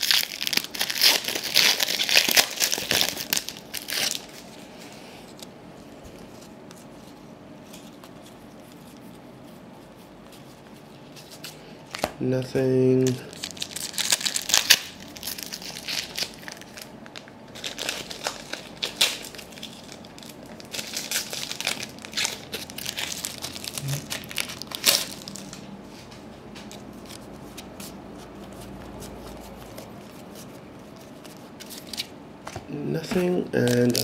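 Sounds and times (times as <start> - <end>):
wrapper tearing and crinkling: 0.0 - 4.5, 13.0 - 25.6, 33.6 - 34.0.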